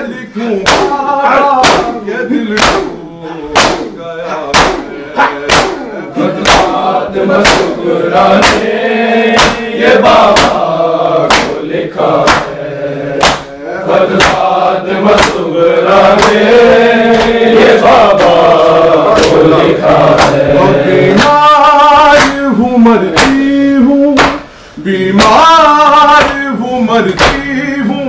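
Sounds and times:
men chanting together: 0.0 - 28.0
open-handed chest beating: 0.6 - 2.0, 2.6 - 6.8, 7.4 - 7.8, 8.4 - 8.7, 9.3 - 10.6, 11.2 - 11.6, 12.2 - 12.6, 14.1 - 14.5, 15.1 - 16.5, 17.1 - 22.5, 23.1 - 24.5, 27.2 - 27.6.

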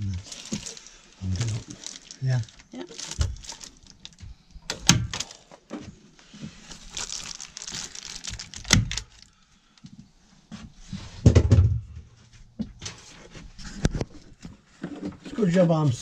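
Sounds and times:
foil insulation crinkling: 0.0 - 4.3, 6.2 - 9.4.

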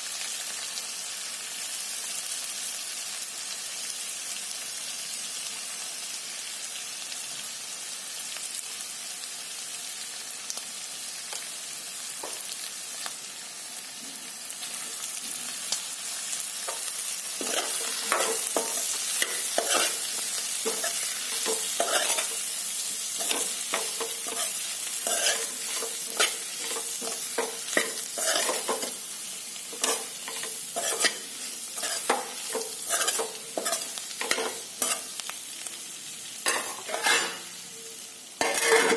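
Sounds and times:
vegetables sizzling in oil: 0.0 - 38.9
metal spoon scraping pan: 16.7 - 29.0, 29.7 - 35.1, 36.5 - 37.5, 38.4 - 38.9.

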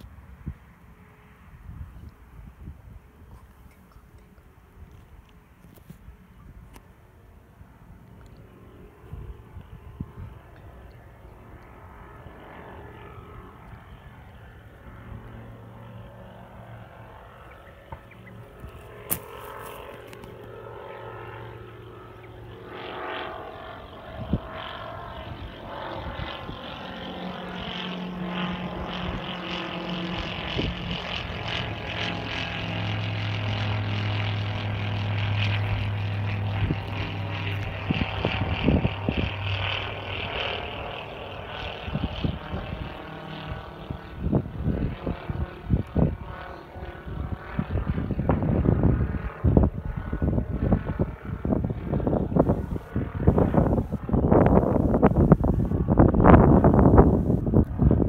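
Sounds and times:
propeller aircraft passing overhead: 0.0 - 58.0
wind buffeting microphone: 1.4 - 3.5, 8.9 - 10.9, 23.8 - 58.0.

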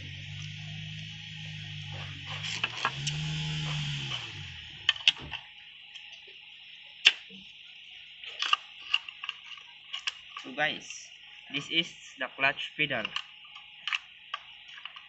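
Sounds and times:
engine humming: 0.0 - 9.3
metal parts clicking and tapping: 8.3 - 10.6, 13.0 - 15.0.

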